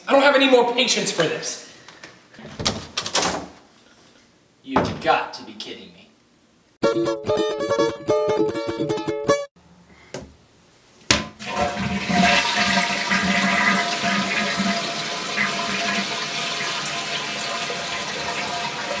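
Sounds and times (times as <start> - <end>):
toilet flushing water: 11.4 - 19.0.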